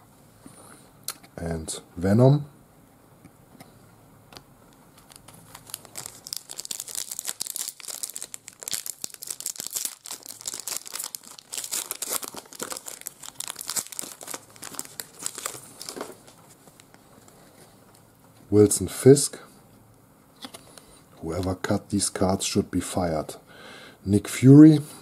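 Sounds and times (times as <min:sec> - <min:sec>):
foil wrapper crinkling and tearing: 0:05.0 - 0:17.0.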